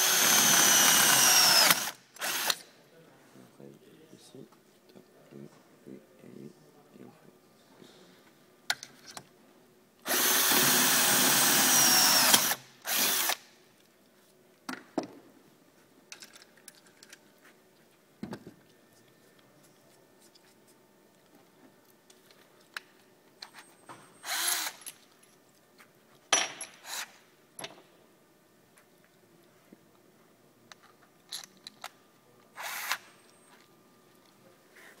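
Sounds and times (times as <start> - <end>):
cordless drill drilling: 0.0 - 2.6, 10.1 - 13.4, 24.2 - 24.8, 32.6 - 33.0
tools clicking and knocking: 16.1 - 17.2, 26.3 - 27.9.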